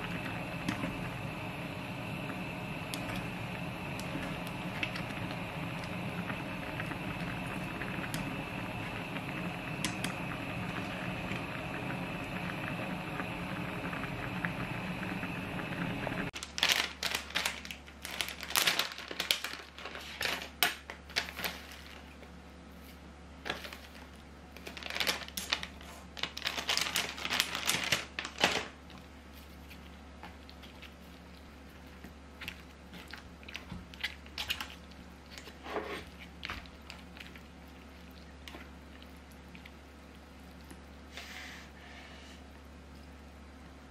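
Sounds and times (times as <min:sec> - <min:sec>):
soup boiling: 0:00.0 - 0:18.7, 0:29.5 - 0:43.9
plastic packaging crinkling: 0:16.4 - 0:22.3, 0:23.4 - 0:35.6.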